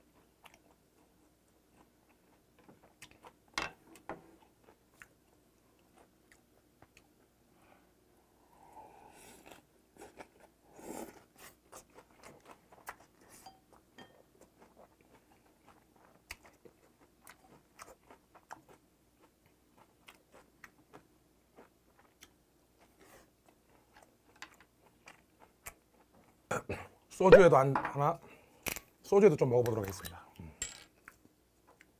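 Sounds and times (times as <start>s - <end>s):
close chewing with wet crunches: 14.4s - 26.5s.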